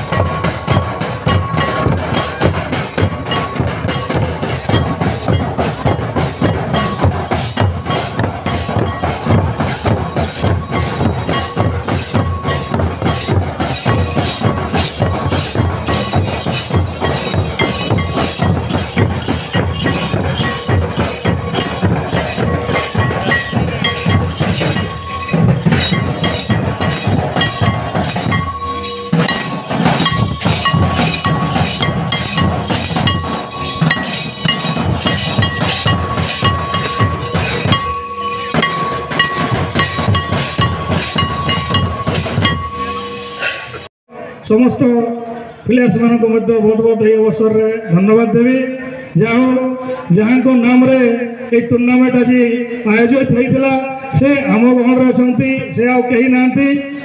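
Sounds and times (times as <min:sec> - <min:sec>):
drums beaten with sticks: 0:00.0 - 0:43.9
small metal cymbals clinking: 0:00.0 - 0:43.9
steady high note: 0:17.6 - 0:43.9.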